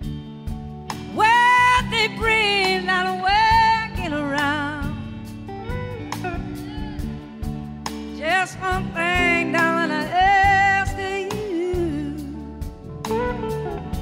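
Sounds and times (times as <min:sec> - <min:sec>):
blues-rock band playing: 0:00.0 - 0:14.0
lead guitar bending notes: 0:05.3 - 0:11.2, 0:13.0 - 0:14.0.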